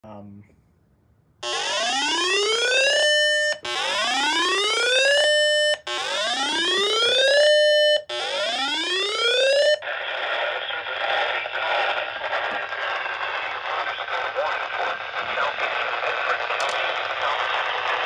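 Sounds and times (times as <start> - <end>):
radio hiss: 9.8 - 18.0.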